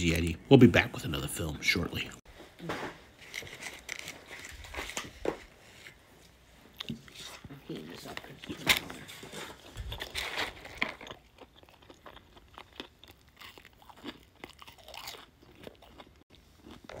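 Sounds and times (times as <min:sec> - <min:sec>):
person chewing: 0:06.7 - 0:17.0.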